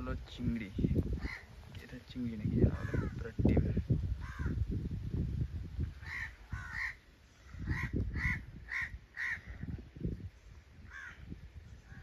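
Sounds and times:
crows cawing: 1.2 - 1.6, 2.7 - 3.2, 4.2 - 4.6, 6.0 - 9.7, 10.8 - 11.3.

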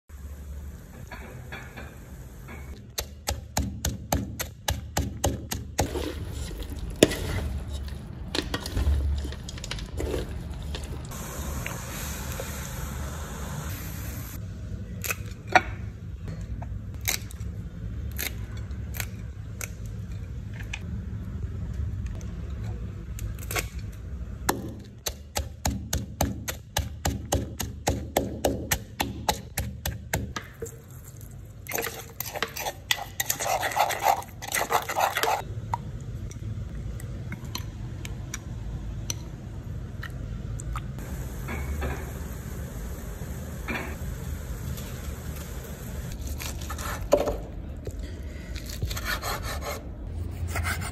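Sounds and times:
kitchen clatter of knocks and scraping: 1.0 - 2.8, 4.2 - 11.1
pestle pounding in a clay mortar: 2.9 - 6.0, 24.5 - 30.5.

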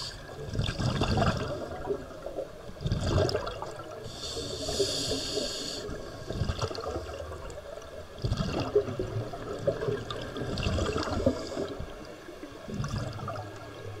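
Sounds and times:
regulator air hiss: 0.0 - 0.3, 4.0 - 6.2
bubbles gurgling underwater: 0.3 - 4.1, 5.9 - 14.0.

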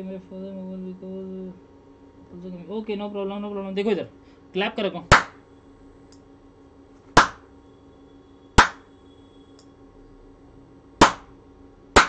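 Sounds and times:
sharp hand claps: 5.1 - 5.4, 7.2 - 7.4, 8.6 - 8.8, 11.0 - 11.3.

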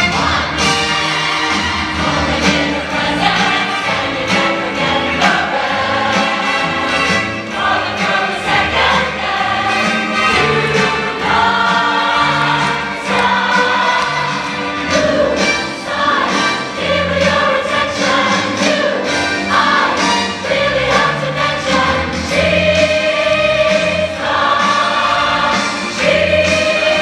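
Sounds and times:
choir singing musical number: 0.0 - 27.0.

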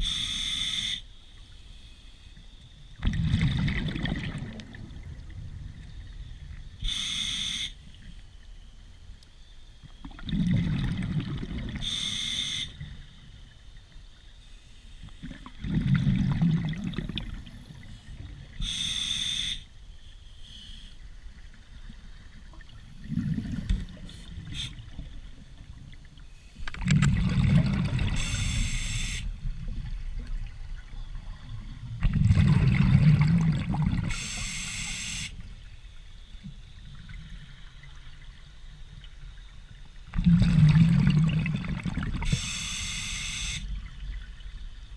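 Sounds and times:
diver inhaling through regulator: 0.0 - 1.0, 6.8 - 7.8, 11.8 - 12.8, 18.0 - 19.7, 28.1 - 29.3, 34.0 - 35.4, 42.2 - 43.6
exhaled bubbles rumbling: 2.9 - 6.8, 10.0 - 11.9, 15.2 - 18.6, 21.8 - 28.7, 29.3 - 34.3, 36.7 - 42.4.

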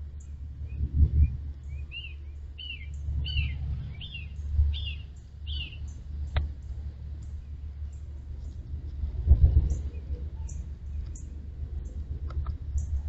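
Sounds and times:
steady low rumble: 0.0 - 13.0
bird singing clear whistles: 0.7 - 5.9, 10.4 - 11.3.

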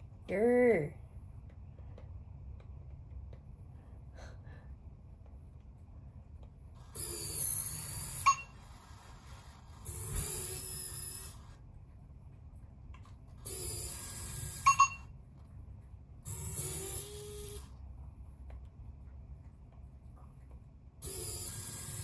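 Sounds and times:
toy robot servo motors whirring: 6.8 - 11.6, 13.3 - 15.0, 16.2 - 17.8, 21.0 - 22.0.

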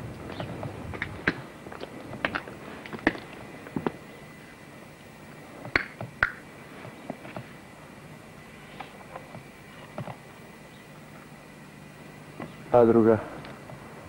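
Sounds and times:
footsteps over rubble and tiles: 0.3 - 4.0.

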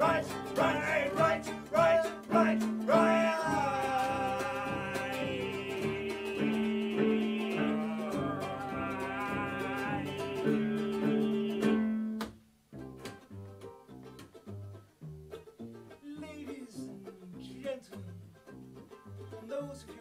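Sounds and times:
wordless singing: 0.0 - 12.0
bowed cello notes: 0.0 - 19.7
plucked ukulele notes: 0.0 - 20.0
ukulele strumming: 0.0 - 20.0.

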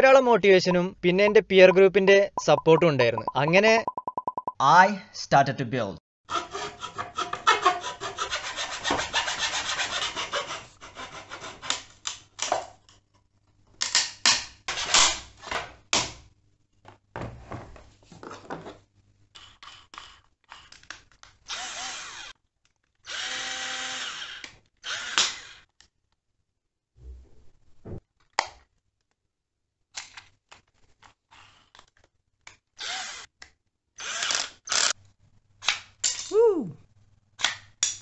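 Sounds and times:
hacksaw cutting wood: 6.3 - 11.9
cordless drill motor whining: 21.5 - 22.3, 23.1 - 25.6, 32.8 - 33.2.

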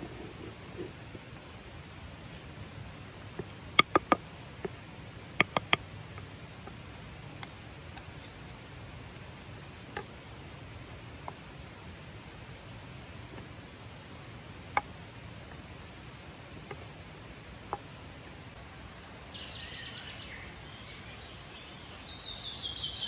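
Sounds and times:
wooden spatula tapping clay pot: 3.3 - 4.8, 5.4 - 6.8.

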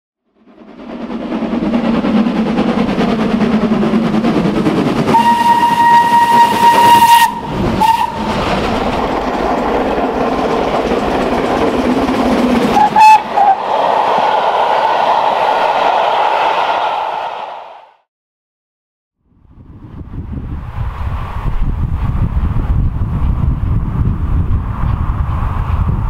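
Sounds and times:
steam locomotive running: 0.3 - 17.9
steam whistle: 5.1 - 8.4, 12.8 - 13.7.

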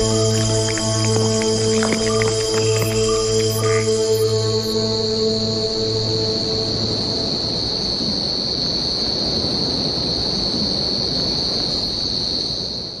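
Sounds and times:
dense low hum: 0.0 - 8.4
high-pitched insect chorus: 0.0 - 13.0.

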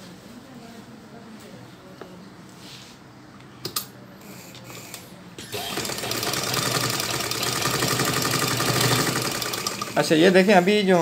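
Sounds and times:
sewing machine stitching: 5.4 - 10.3.

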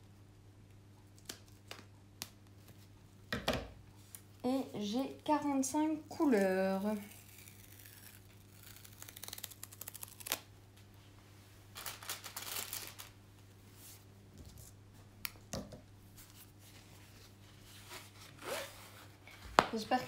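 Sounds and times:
low steady hum: 0.0 - 20.0
plastic wrapping crinkling: 6.3 - 10.5, 11.7 - 13.2.

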